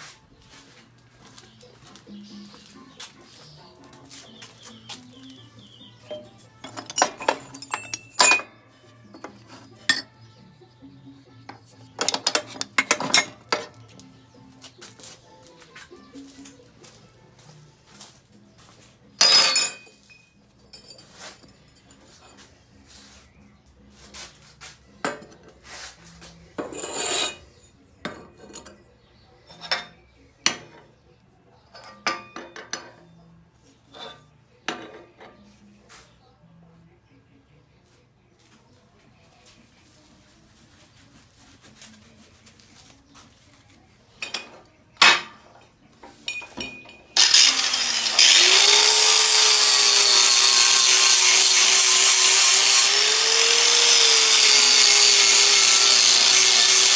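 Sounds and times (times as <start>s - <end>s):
scrap metal clinking and clattering: 6.1s - 10.2s, 12.0s - 13.8s, 19.2s - 22.5s
metal scrape: 25.1s - 28.8s.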